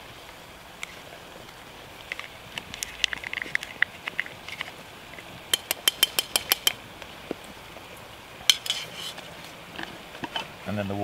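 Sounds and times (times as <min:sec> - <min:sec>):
metal taps on can: 0:05.5 - 0:06.8.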